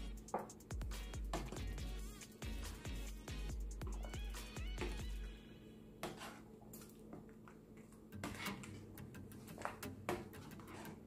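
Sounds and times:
metal spoon scraping a pan: 6.0 - 6.5, 8.2 - 8.9, 10.1 - 11.0.

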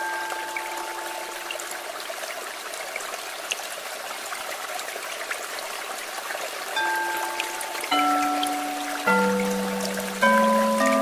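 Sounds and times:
flowing water rushing: 0.0 - 11.0
tiny water drips: 0.0 - 11.0.

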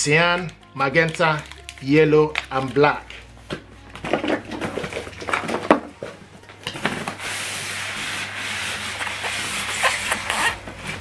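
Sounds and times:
plastic packaging crinkling: 0.9 - 3.2
plastic rubbing against cardboard: 6.7 - 11.0.

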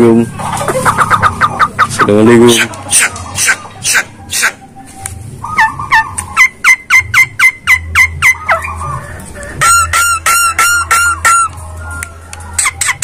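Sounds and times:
myna calling sharp notes: 0.3 - 4.8.

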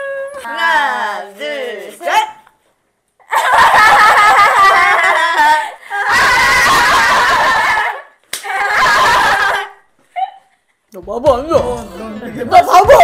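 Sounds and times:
women laughing and shrieking: 3.2 - 10.5.

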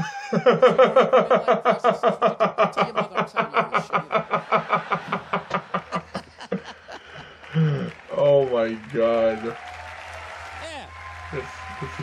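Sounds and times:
man laughing hard: 0.0 - 7.9.

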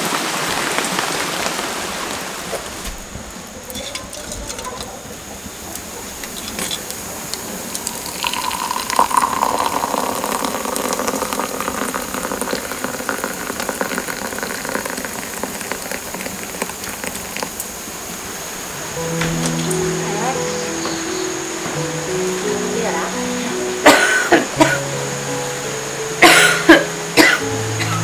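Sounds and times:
wood fire crackling: 0.0 - 28.0
tea pouring into a cup: 6.3 - 17.7.

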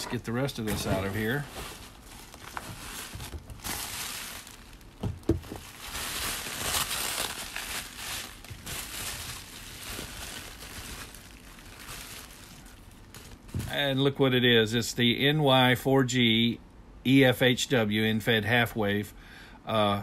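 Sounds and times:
bubble wrap crinkling: 0.0 - 14.0.

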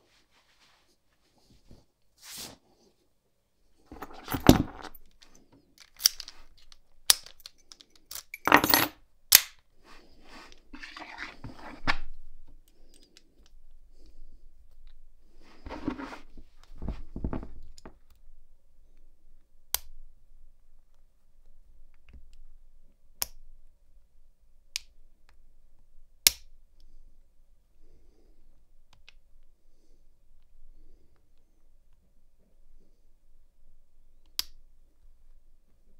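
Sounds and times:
lock picking handling noise: 3.9 - 9.6.

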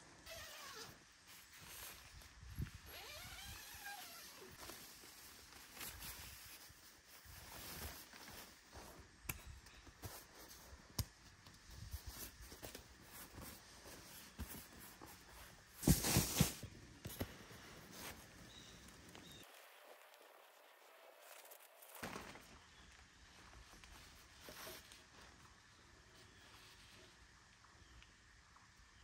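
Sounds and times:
fabric rustling: 11.9 - 19.2.

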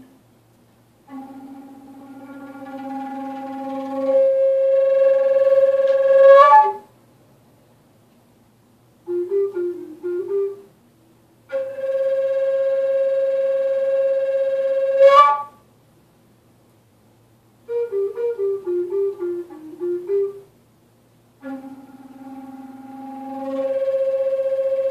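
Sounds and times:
flute played in slow phrases: 1.1 - 6.9, 9.1 - 10.8, 11.5 - 15.7, 17.6 - 20.5, 21.4 - 24.9.

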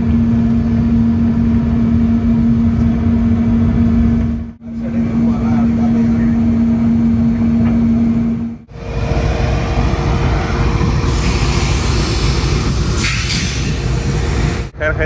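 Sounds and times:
cab rumble and hum: 0.0 - 15.0
locomotive engine rumbling: 0.0 - 15.0
hiss: 11.0 - 14.7.

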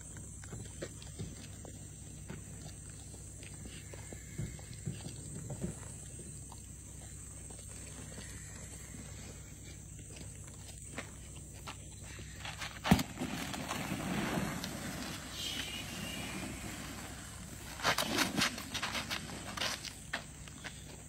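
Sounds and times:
footsteps on dirt road: 0.0 - 21.0
snake body dragging on ground: 12.2 - 21.0.

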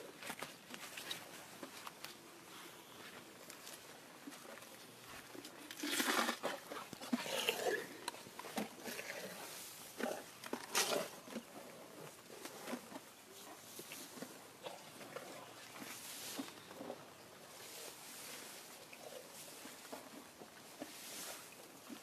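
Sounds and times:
elephant rustling through tall grass: 15.8 - 16.6, 17.5 - 19.9, 20.8 - 22.0.

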